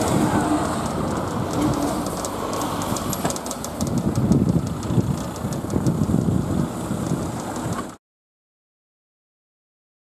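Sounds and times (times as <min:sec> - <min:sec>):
train rumbling past: 0:00.0 - 0:07.9
train wheels ticking: 0:00.0 - 0:08.0
wind on microphone: 0:00.0 - 0:08.0.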